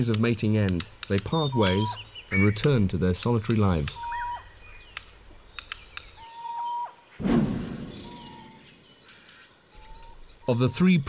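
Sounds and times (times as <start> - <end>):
birds chirping: 0.0 - 11.0
whistled bird note: 6.2 - 10.9.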